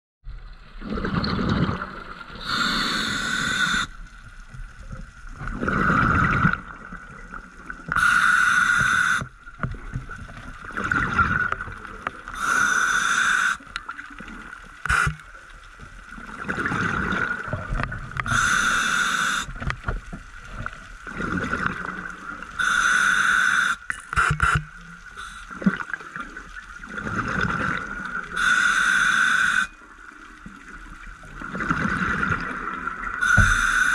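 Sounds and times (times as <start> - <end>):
rush of exhaled bubbles: 0.8 - 4.0, 5.3 - 9.2, 10.4 - 12.8, 16.2 - 19.6, 20.5 - 22.7, 25.2 - 28.5, 31.3 - 33.9
hiss of inhaled air: 2.4 - 4.0, 8.0 - 9.3, 12.4 - 13.6, 14.9 - 15.1, 18.3 - 19.5, 22.6 - 24.6, 25.2 - 25.6, 28.4 - 29.7, 33.2 - 33.9.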